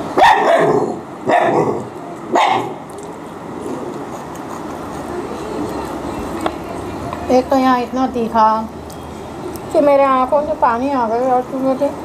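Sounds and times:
dog barking: 0.2s - 2.8s.

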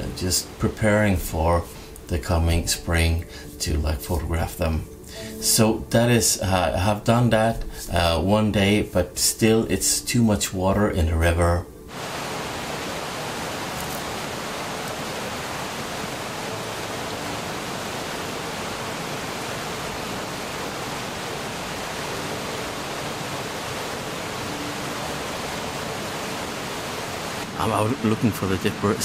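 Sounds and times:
river rapids rushing: 11.9s - 29.0s.

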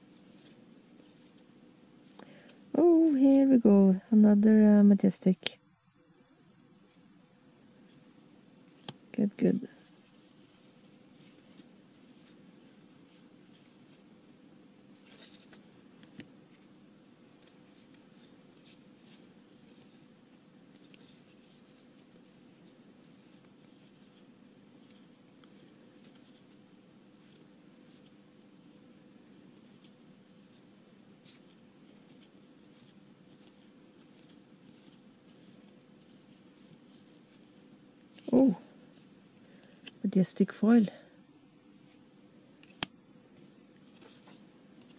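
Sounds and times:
faint steady hum: 0.0s - 44.9s
trading cards sliding and flicking: 0.1s - 3.4s, 8.8s - 9.0s, 9.8s - 14.0s, 15.0s - 16.7s, 20.7s - 24.2s, 24.8s - 28.2s, 29.5s - 37.5s, 42.6s - 44.9s.

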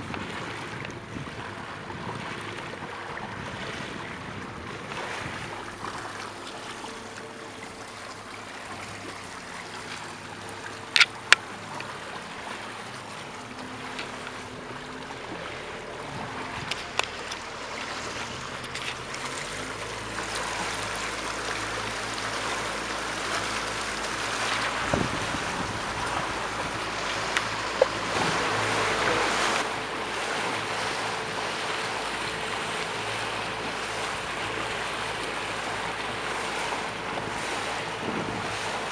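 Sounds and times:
wind on microphone: 0.0s - 6.2s, 22.4s - 32.4s, 35.9s - 38.9s
speedboat engine running: 0.0s - 38.9s
water rushing along hull: 0.0s - 38.9s.

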